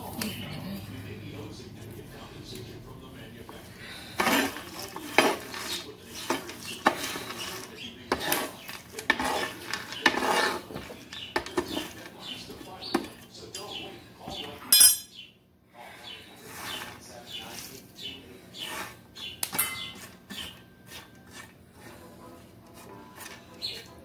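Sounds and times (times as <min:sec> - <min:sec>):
utensil scraping a pan: 0:03.6 - 0:14.5, 0:16.0 - 0:24.0.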